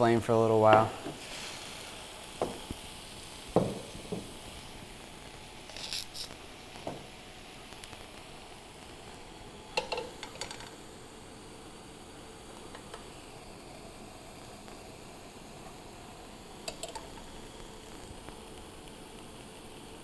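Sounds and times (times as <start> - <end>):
tofu sizzling in a pan: 0.9 - 20.0
bowl and pan set down: 9.8 - 10.7
utensil clicking against pan: 16.7 - 17.2.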